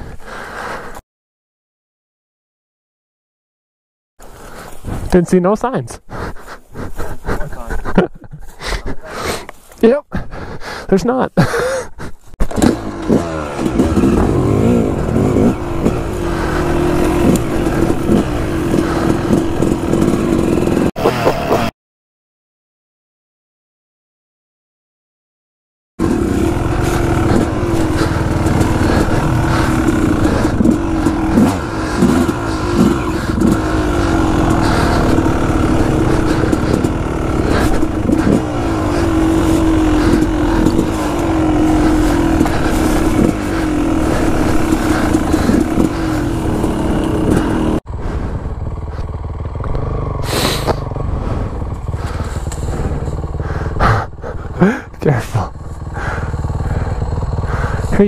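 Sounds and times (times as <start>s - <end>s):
distant motorbike climbing: 11.5s - 21.7s, 26.0s - 58.0s
dirt bike engine revving: 12.4s - 21.7s, 26.0s - 58.0s.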